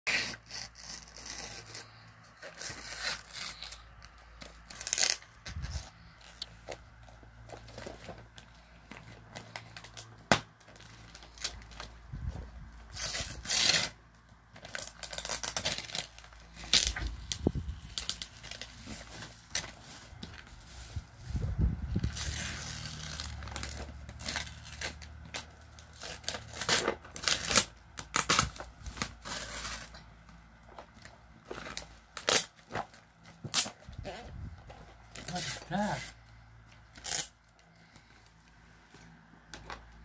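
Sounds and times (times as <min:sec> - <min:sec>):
wrapping paper tearing: 0:00.1 - 0:06.7, 0:12.8 - 0:14.0, 0:14.6 - 0:30.1, 0:35.1 - 0:36.2, 0:36.8 - 0:37.8.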